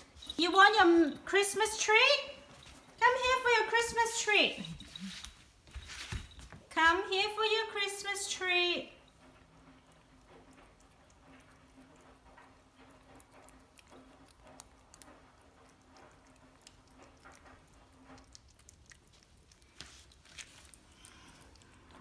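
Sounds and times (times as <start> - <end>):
cat licking and chewing: 9.0 - 22.0.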